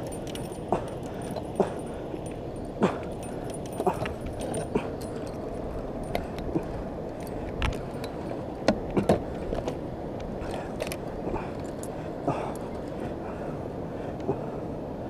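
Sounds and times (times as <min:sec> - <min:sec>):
fishing gear metallic clinks: 0:00.0 - 0:08.4, 0:10.4 - 0:13.0
wind and water rushing: 0:00.0 - 0:15.0.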